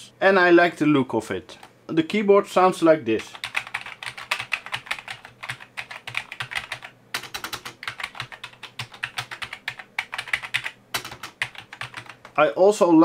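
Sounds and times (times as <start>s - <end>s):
keyboard typing: 3.2s - 12.4s.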